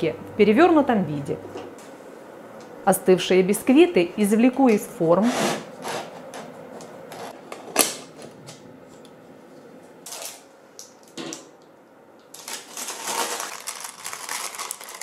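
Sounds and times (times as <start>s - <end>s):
parchment paper rustling: 12.4s - 15.0s.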